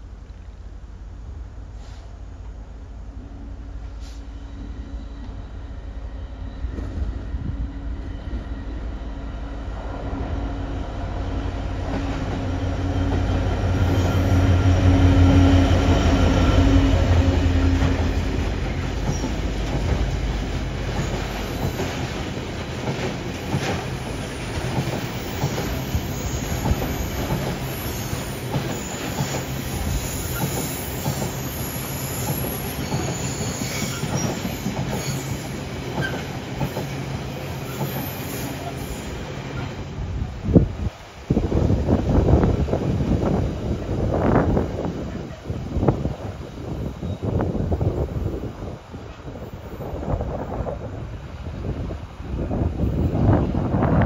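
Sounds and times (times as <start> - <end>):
diesel locomotive engine hum: 0.0 - 54.0
high wheel squeal: 25.1 - 36.3.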